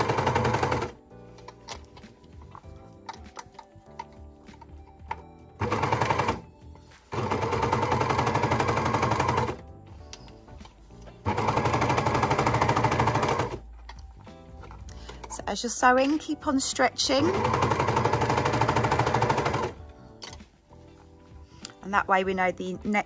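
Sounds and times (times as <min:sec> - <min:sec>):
overlocker stitching rattle: 0:00.0 - 0:04.6.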